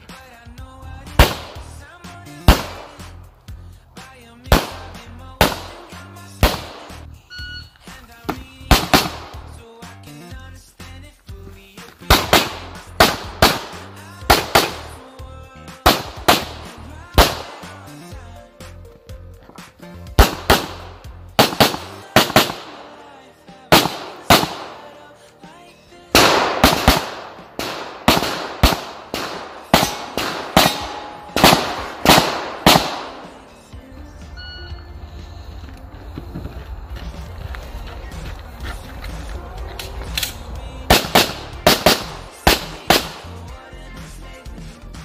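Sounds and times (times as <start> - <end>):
handgun shots: 1.2 - 1.7, 2.5 - 3.0, 4.5 - 7.0, 8.3 - 9.5, 12.1 - 14.9, 15.8 - 17.8, 20.2 - 23.0, 23.7 - 25.0, 26.2 - 33.5, 40.0 - 43.3.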